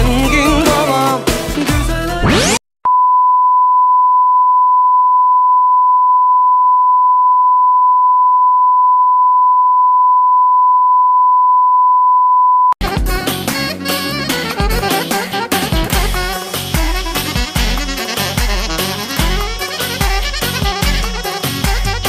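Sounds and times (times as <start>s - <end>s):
music: 0.0s - 2.4s, 12.8s - 22.0s.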